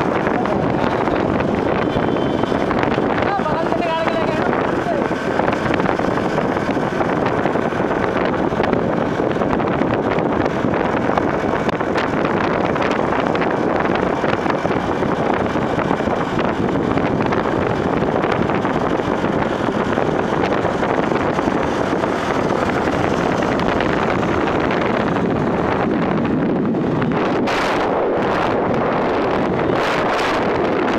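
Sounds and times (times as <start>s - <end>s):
motorbike engine and road noise: 0.0s - 30.9s
wind rushing over microphone: 0.0s - 30.9s.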